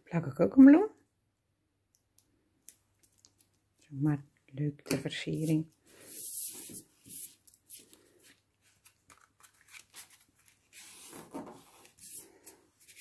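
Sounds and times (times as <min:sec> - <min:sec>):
card rustling and rubbing: 0:05.4 - 0:13.0.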